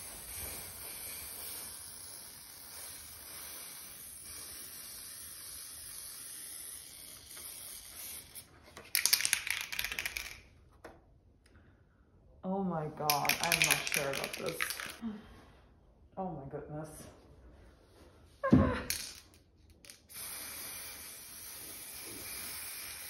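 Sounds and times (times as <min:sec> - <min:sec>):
spray paint can hissing: 0:00.0 - 0:10.4, 0:13.1 - 0:15.0, 0:19.8 - 0:23.0.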